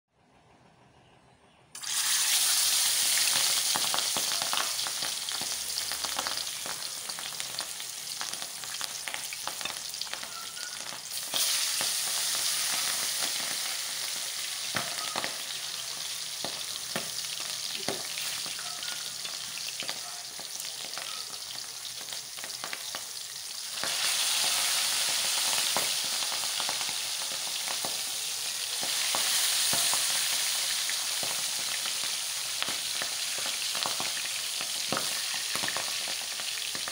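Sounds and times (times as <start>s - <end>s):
fish sizzling in hot oil: 1.8s - 36.9s.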